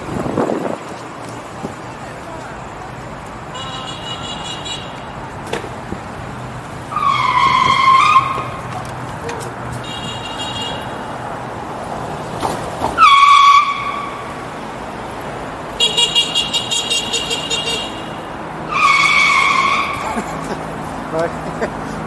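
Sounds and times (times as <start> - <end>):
city street traffic: 0.0 - 22.0
high-pitched squeals: 6.9 - 8.7, 16.2 - 20.2.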